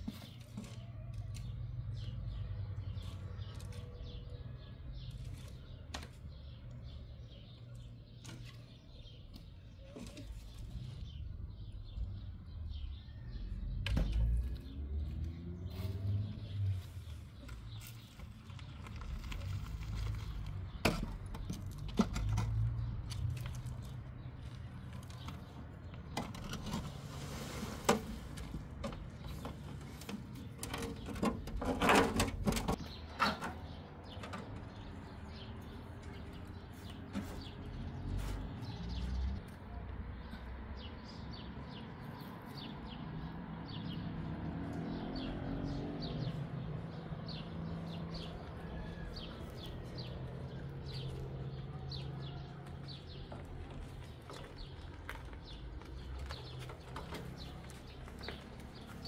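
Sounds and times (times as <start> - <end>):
small birds chirping: 0.0 - 59.0
hands working loose soil: 23.1 - 30.6
soil scraping out of a wheelbarrow: 26.3 - 28.8.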